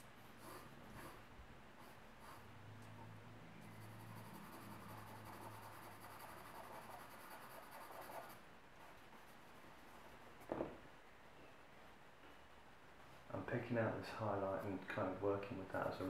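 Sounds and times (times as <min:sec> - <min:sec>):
pencil scratching on paper: 0:00.4 - 0:01.2, 0:01.8 - 0:02.5, 0:03.6 - 0:08.4.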